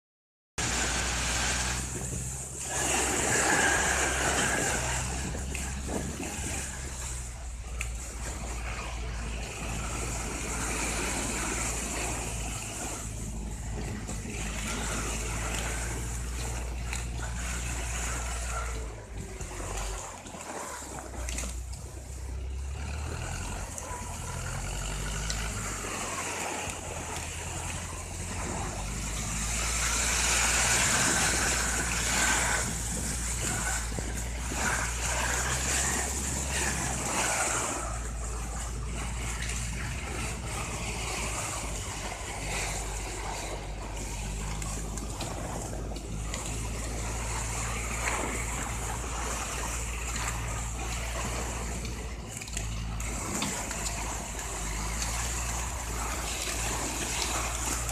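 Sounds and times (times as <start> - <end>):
tractor engine drone: 0.6 - 57.9.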